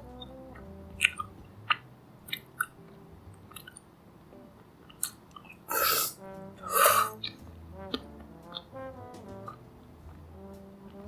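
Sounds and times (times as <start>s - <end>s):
brass swing music: 0.0s - 3.5s, 5.7s - 11.0s.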